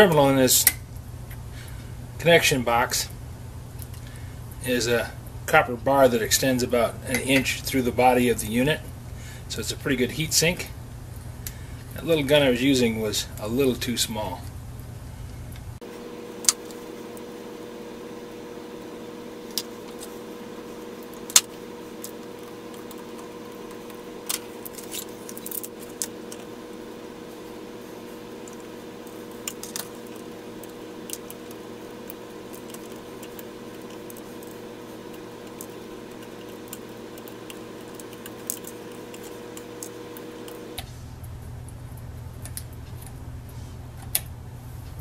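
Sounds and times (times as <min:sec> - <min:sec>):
soldering gun humming: 0:15.5 - 0:40.9.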